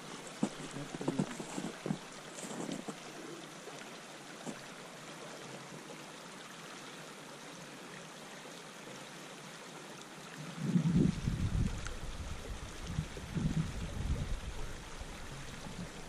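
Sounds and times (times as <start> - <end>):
river rushing over riffle: 0.0 - 3.2.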